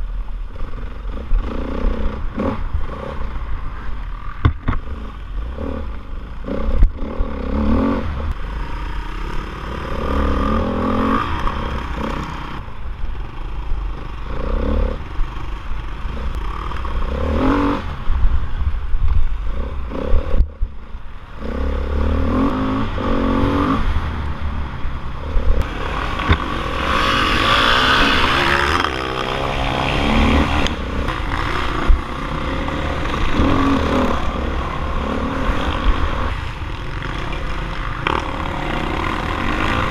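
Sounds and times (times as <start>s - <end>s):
dirt bike engine revving: 4.8s - 12.7s, 14.0s - 17.9s, 21.4s - 24.2s, 25.2s - 39.9s.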